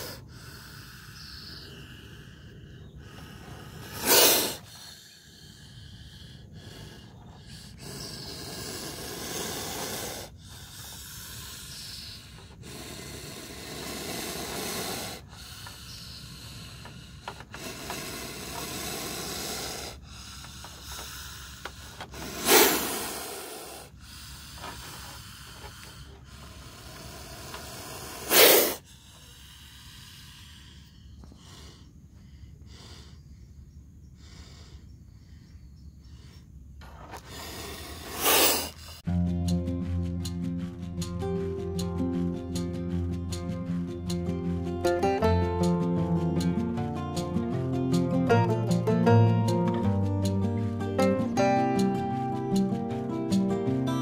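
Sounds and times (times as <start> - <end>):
cobra hissing: 0.0 - 54.0
faint rustle: 36.8 - 39.0.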